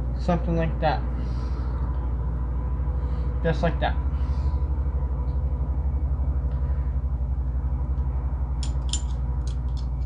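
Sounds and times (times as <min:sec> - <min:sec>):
pulsing machine hum: 0:00.0 - 0:10.0
metal parts clinking: 0:08.6 - 0:09.9.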